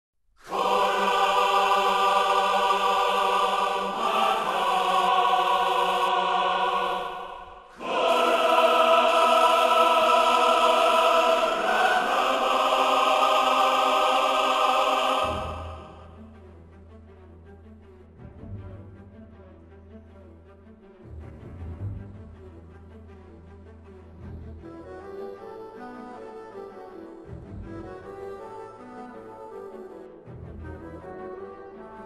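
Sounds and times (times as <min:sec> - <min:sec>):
sustained choir-like chords: 0:00.4 - 0:16.7.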